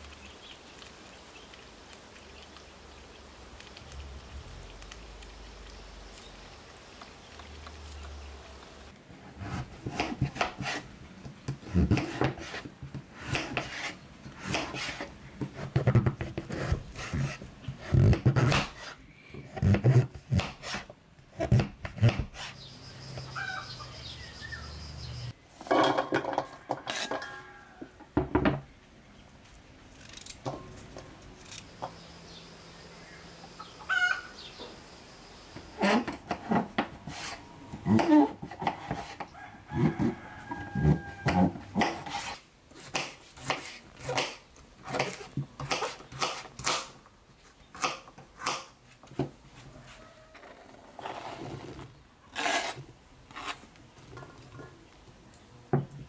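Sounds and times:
hen clucking: 23.2s - 24.2s, 33.6s - 34.8s.

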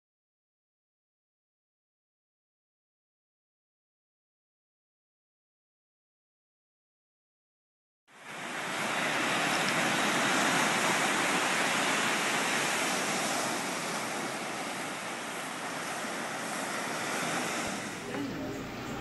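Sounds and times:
sea surf washing onto beach: 8.1s - 19.0s.

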